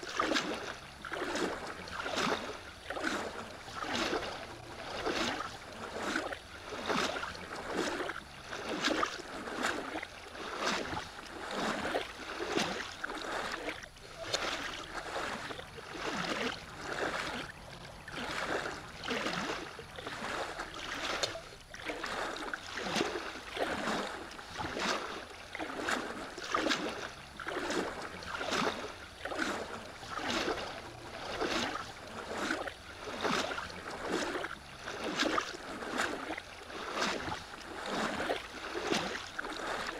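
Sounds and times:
kayak paddle splashing: 0.0 - 39.9
water lapping at hull: 0.0 - 39.9.

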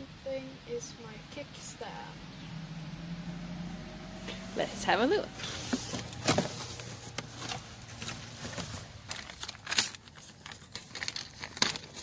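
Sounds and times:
plastic and cardboard packaging crinkling: 5.4 - 12.0.

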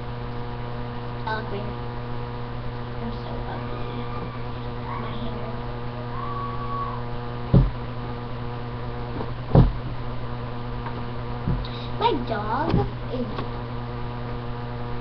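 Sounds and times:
electrical mains hum: 0.0 - 15.0
sharp thump: 7.5 - 7.8, 9.2 - 10.0.

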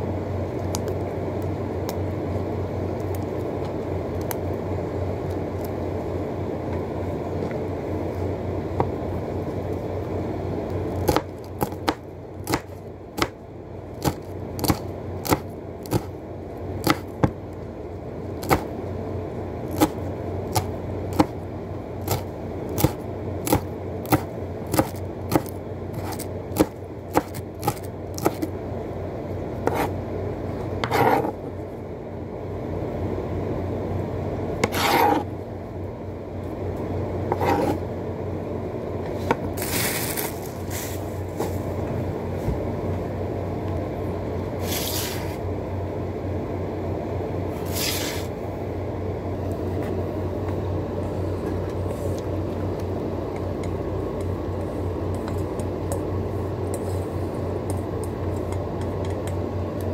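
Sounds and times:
steady low hum: 0.0 - 59.9
knife chopping on wooden board: 11.1 - 13.3, 14.0 - 16.1, 16.8 - 17.4, 18.4 - 18.7, 19.8 - 21.3, 22.8 - 28.4, 29.7 - 29.9, 30.8 - 31.4
blade scraping across board: 29.6 - 29.9, 30.8 - 31.4, 34.6 - 35.3, 37.3 - 37.8, 47.6 - 48.3.

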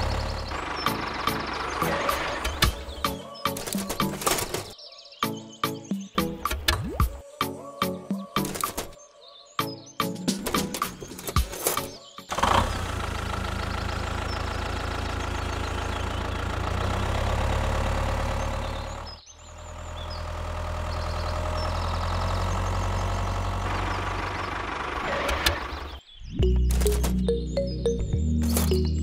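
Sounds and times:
engine running steadily: 0.0 - 4.7, 12.3 - 26.0.

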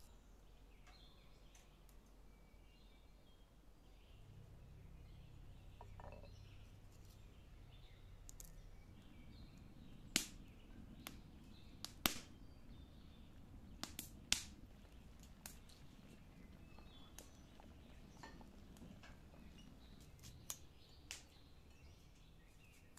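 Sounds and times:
faint bird chirps: 0.0 - 13.5
wood fire crackling: 4.2 - 22.9
sharp fire pops: 9.0 - 21.3.

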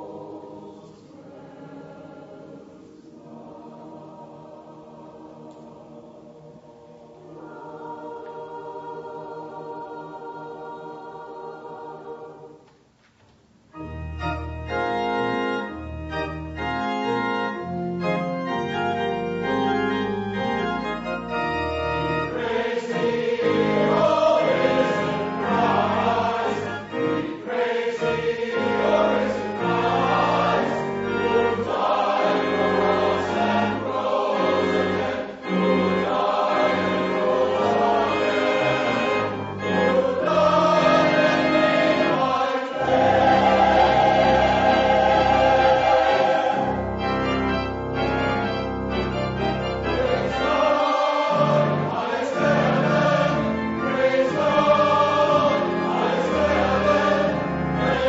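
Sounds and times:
choir singing: 0.0 - 12.6, 14.2 - 58.0
organ playing sustained chords: 13.7 - 58.0
held chord: 13.8 - 58.0.

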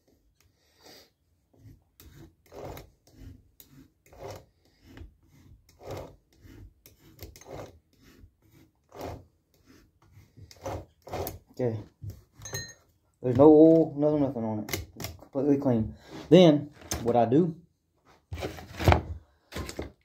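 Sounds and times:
rag scrubbing chainsaw chain: 2.0 - 9.8.

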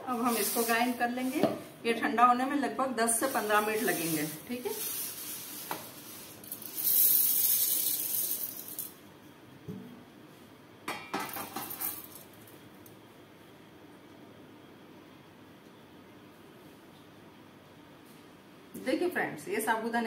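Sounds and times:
small grains pouring into steel jar: 0.1 - 1.3, 3.2 - 8.9.

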